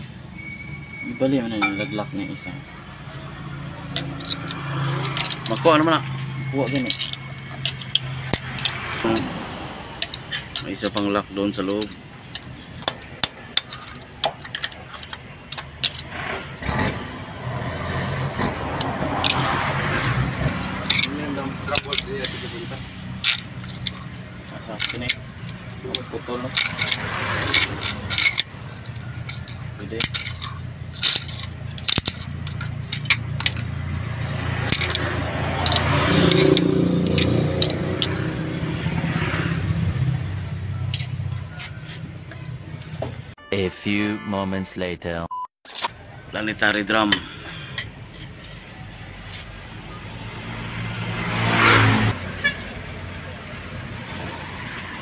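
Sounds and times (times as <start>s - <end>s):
screwdriver scraping against steel: 3.9s - 9.3s, 20.6s - 33.8s, 34.5s - 38.4s, 47.8s - 49.6s.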